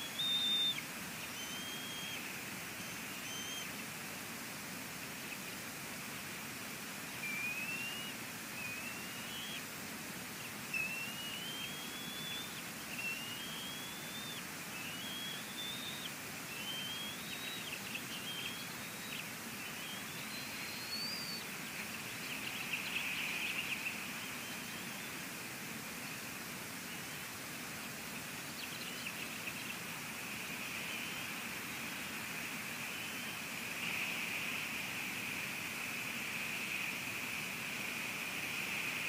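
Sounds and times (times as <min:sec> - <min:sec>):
eagle whistled calls: 0:00.0 - 0:03.7, 0:07.2 - 0:09.6, 0:10.7 - 0:21.5
rain hiss: 0:00.0 - 0:39.0.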